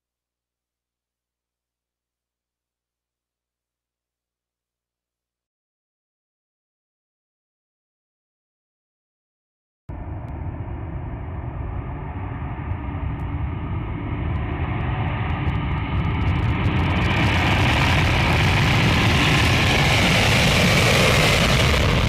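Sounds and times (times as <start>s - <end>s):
jet aircraft rumble: 9.9s - 22.0s.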